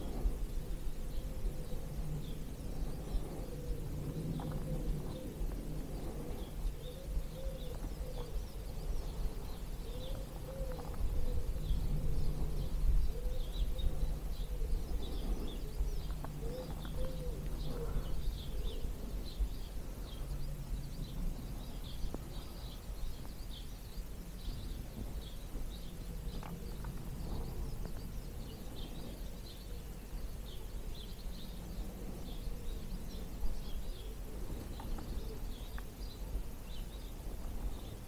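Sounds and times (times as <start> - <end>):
songbirds chirping: 0.0 - 38.0
wind rumble on microphone: 0.0 - 38.0
pigeon cooing: 3.0 - 19.2.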